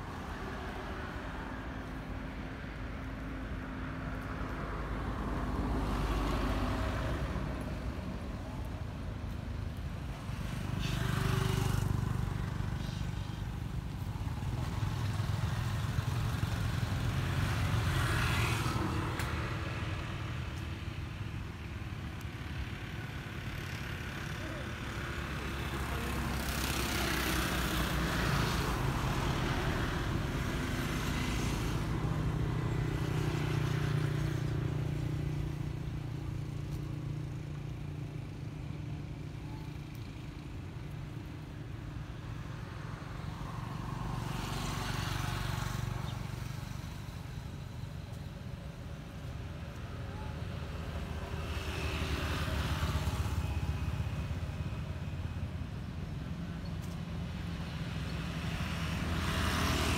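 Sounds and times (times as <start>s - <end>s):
road traffic passing: 0.0s - 59.9s.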